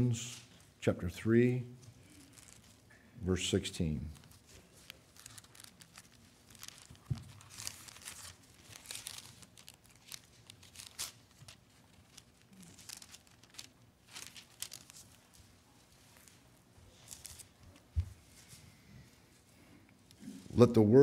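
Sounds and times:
book pages rustling: 0:02.1 - 0:02.9, 0:04.1 - 0:18.5.

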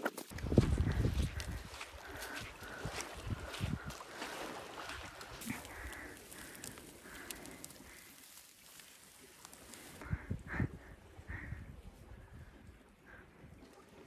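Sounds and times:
crunching of dry grass: 0:00.0 - 0:10.0
woman panting: 0:00.8 - 0:04.5, 0:05.4 - 0:08.1.

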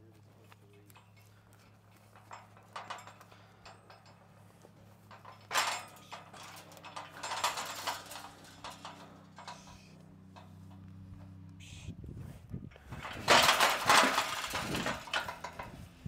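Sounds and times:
turkeys scuffling against crate: 0:12.8 - 0:15.8.

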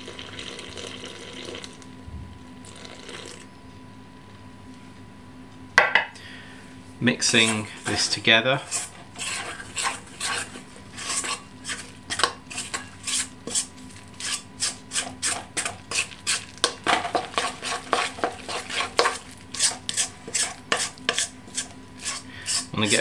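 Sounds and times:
metal spoon scraping a steel bowl: 0:07.2 - 0:23.0.

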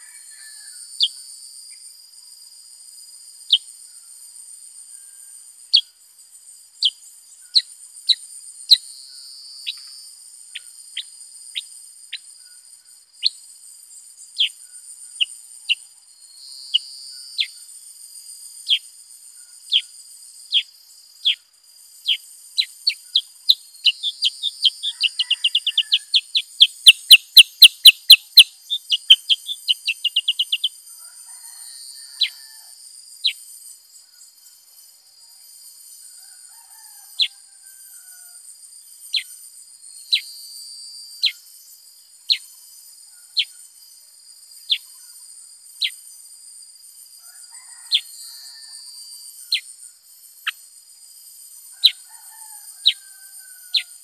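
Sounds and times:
bulbul chip calls: 0:19.7 - 0:21.4, 0:22.0 - 0:30.8.

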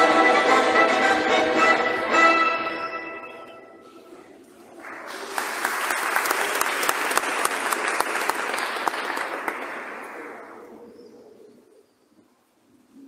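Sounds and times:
crowd applauding: 0:04.7 - 0:10.7.

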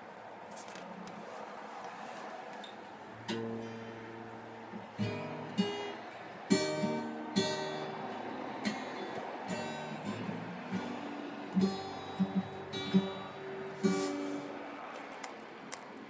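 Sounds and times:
acoustic guitar chords ringing: 0:03.1 - 0:14.8
faint hiss: 0:09.0 - 0:14.9.

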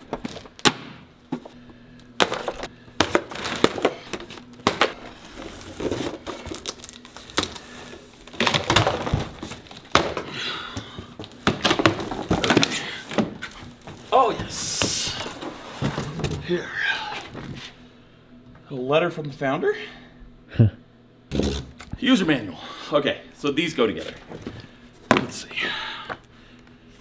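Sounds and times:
packing material crinkling: 0:03.2 - 0:10.0.

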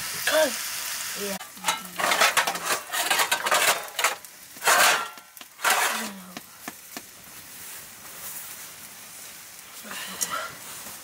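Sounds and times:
faint steady hiss: 0:00.0 - 0:11.0
pot scraping: 0:01.4 - 0:06.4.

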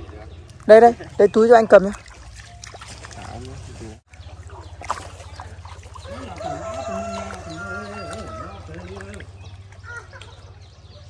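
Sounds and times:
rooster crowing: 0:06.0 - 0:08.7.

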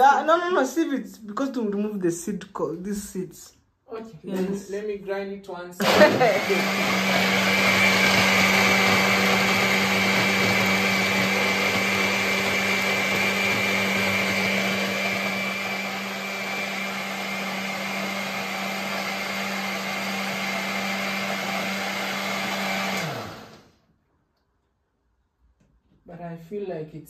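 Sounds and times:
blender motor whining: 0:05.8 - 0:23.8.

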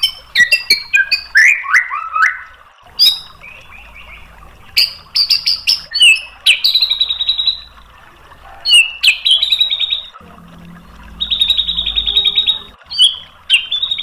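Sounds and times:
songbird trilling: 0:00.0 - 0:07.8, 0:08.6 - 0:10.2, 0:10.8 - 0:14.0
sharp upswept bird note: 0:10.2 - 0:14.0.

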